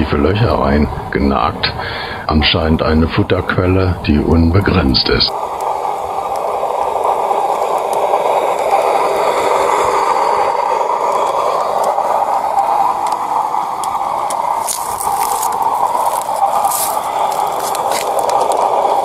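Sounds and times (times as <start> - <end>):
model train wheels on rails: 0.0 - 19.0
faint clicks: 5.3 - 9.2, 11.1 - 19.0.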